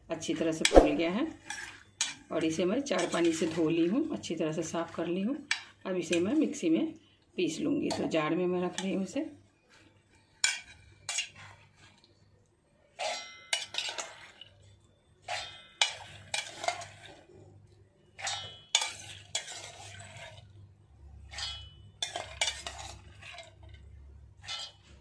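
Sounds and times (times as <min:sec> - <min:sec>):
steel ladle scraping a pot: 0:00.6 - 0:04.4, 0:07.8 - 0:12.1, 0:12.9 - 0:17.5, 0:18.1 - 0:25.0.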